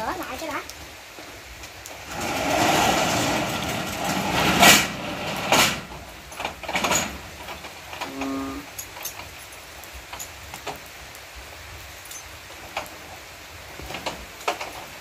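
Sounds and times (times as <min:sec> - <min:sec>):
metal gate rattling: 0:01.9 - 0:10.8
gate clanking shut: 0:02.0 - 0:09.3.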